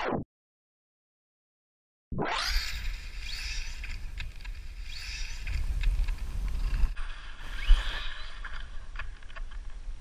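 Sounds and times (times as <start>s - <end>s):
electric motors whining: 2.4s - 8.5s
wind rumble on microphone: 2.8s - 10.0s.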